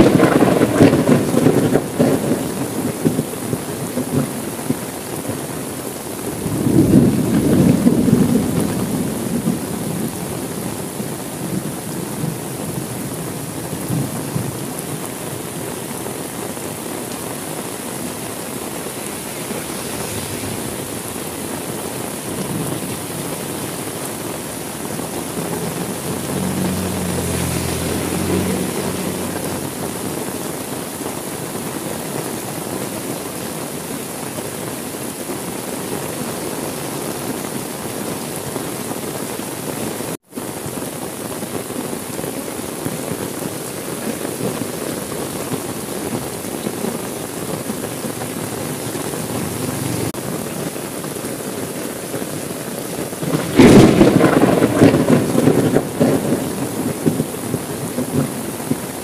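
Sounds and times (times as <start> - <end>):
thunder rolling: 0.0 - 4.8, 6.4 - 10.6, 17.1 - 30.6, 48.0 - 50.2, 53.2 - 58.9
heavy rain falling: 0.0 - 59.0.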